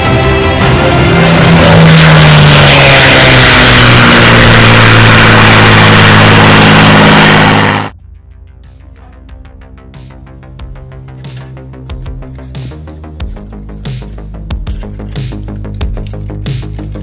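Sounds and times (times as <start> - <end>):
propeller plane engine flypast: 0.0 - 7.9.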